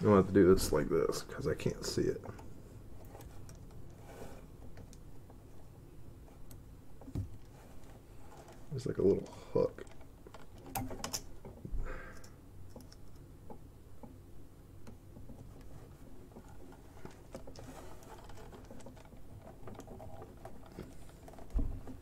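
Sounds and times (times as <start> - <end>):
soft rustle: 0.0 - 10.5, 15.2 - 22.0
faint steady hum: 0.0 - 22.0
plastic parts clicking by hand: 6.4 - 14.2.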